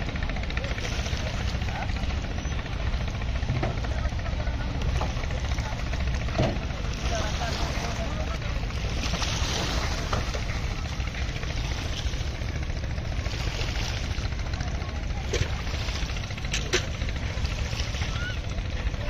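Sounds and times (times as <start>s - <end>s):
low riverbank rumble: 0.0s - 19.0s.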